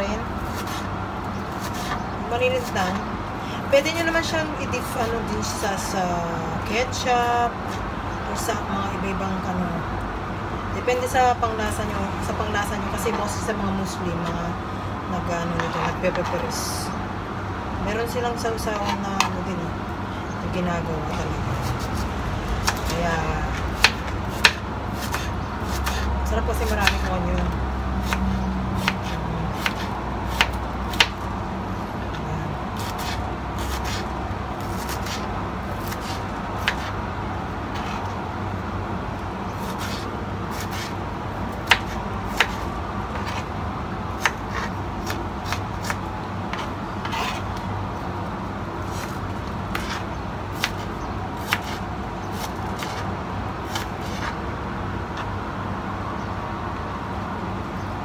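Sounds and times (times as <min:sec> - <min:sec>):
steady background noise: 0:00.0 - 0:58.0
knife slicing scrapes: 0:01.6 - 0:02.0, 0:25.0 - 0:26.1, 0:32.8 - 0:37.0, 0:37.7 - 0:38.1, 0:39.6 - 0:41.0, 0:44.2 - 0:47.6, 0:48.8 - 0:53.1, 0:53.7 - 0:54.4.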